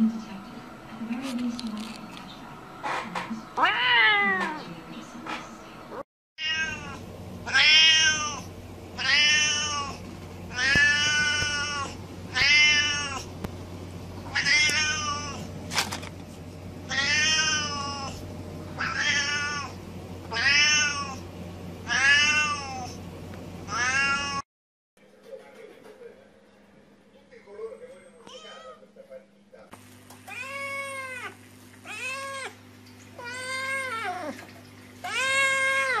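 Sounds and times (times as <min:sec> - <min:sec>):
low steady hum: 0:00.0 - 0:24.4
cat meowing: 0:03.6 - 0:04.6, 0:06.4 - 0:13.3, 0:14.3 - 0:15.5, 0:16.9 - 0:18.2, 0:18.8 - 0:21.2, 0:21.9 - 0:23.0, 0:23.7 - 0:24.4, 0:28.2 - 0:28.8, 0:30.3 - 0:32.6, 0:35.0 - 0:36.0.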